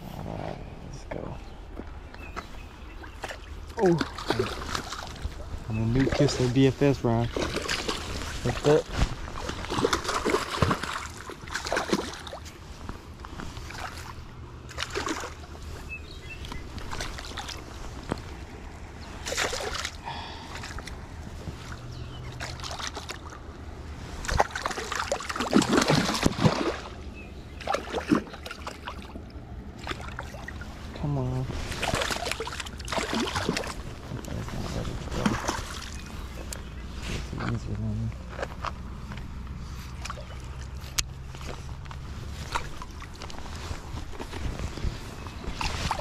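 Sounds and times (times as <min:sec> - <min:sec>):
fish splashing in water: 0:03.1 - 0:06.5, 0:07.3 - 0:12.5, 0:13.6 - 0:15.6, 0:16.6 - 0:18.4, 0:19.1 - 0:21.0, 0:21.7 - 0:23.5, 0:24.2 - 0:30.7, 0:31.7 - 0:34.0, 0:35.1 - 0:36.3, 0:39.8 - 0:41.7, 0:42.3 - 0:44.4, 0:45.2 - 0:46.0.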